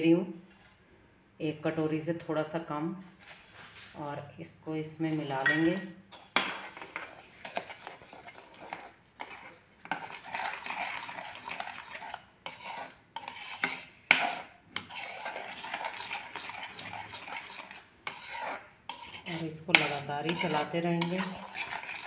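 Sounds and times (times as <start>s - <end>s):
metal spoon scraping a pan: 5.1s - 22.0s.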